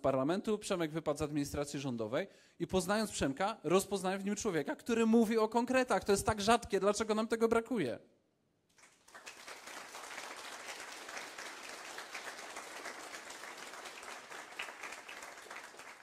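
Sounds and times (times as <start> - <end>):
audience applauding: 8.8 - 16.0.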